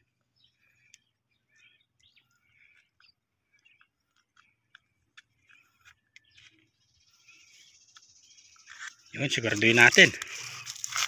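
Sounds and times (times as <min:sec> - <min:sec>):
faint bird chirps: 0:00.0 - 0:10.9.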